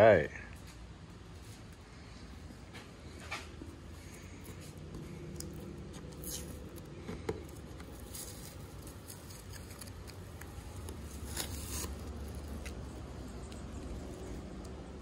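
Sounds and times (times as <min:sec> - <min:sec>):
tape peeling crinkle: 0:03.6 - 0:14.8.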